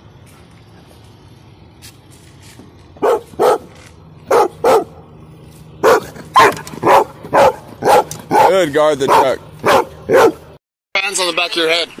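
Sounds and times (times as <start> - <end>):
dog barking: 3.0 - 3.7, 4.3 - 5.0, 5.8 - 10.5.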